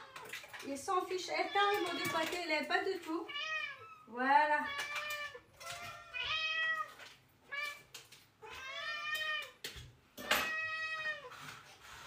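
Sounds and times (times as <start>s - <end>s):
cats meowing: 1.2s - 2.4s, 3.2s - 11.6s.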